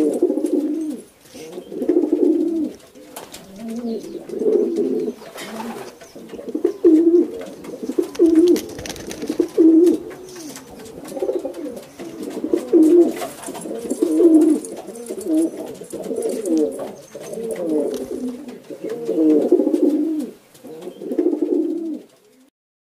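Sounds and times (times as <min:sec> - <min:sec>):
pigeons cooing: 0:00.0 - 0:22.5.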